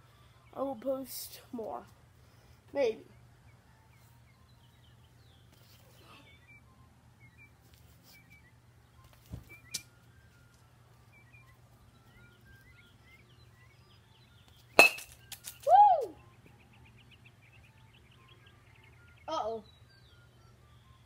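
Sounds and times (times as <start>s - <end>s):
faint bird chirps: 2.8s - 10.0s, 11.0s - 14.7s
bat hitting baseball: 14.8s - 15.4s.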